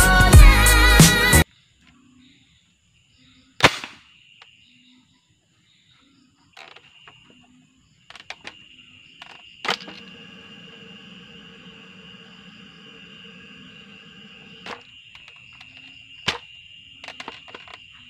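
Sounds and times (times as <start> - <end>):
crickets chirping: 1.4 - 18.0.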